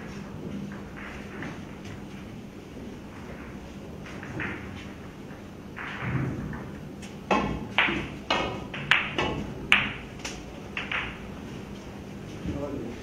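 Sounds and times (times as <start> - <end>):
billiard balls clacking: 0.0 - 12.1
cue striking ball: 3.3 - 11.3.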